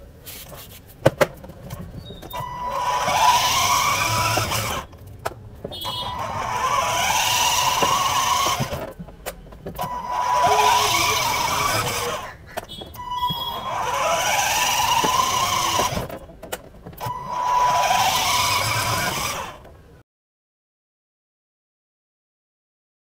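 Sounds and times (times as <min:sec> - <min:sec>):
plastic wheels rolling on tiles: 0:01.0 - 0:19.7
toy electric motors whining: 0:02.0 - 0:05.0, 0:05.7 - 0:19.7.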